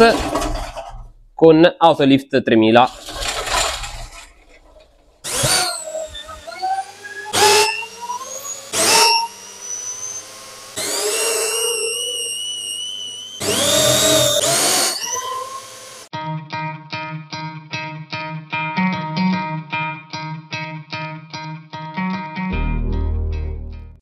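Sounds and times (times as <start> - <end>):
power tool motor whining: 2.9 - 16.1
guitar music: 16.1 - 24.0.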